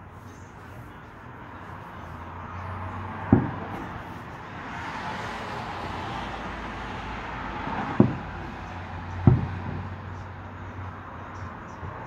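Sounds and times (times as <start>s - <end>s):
road traffic hum: 0.0s - 12.0s
distant fireworks booming: 3.2s - 4.2s, 7.6s - 10.1s.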